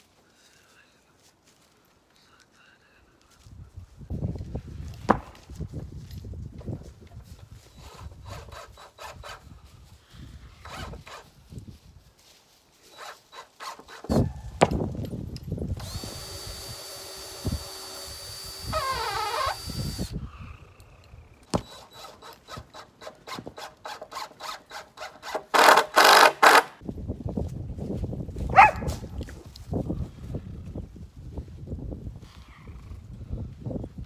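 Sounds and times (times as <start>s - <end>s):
power drill whirring: 12.9s - 14.2s, 15.7s - 20.2s, 21.4s - 26.8s.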